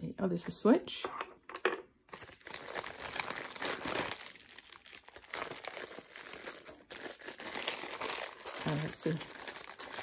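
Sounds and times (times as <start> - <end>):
plastic bag crinkling: 2.1 - 10.0.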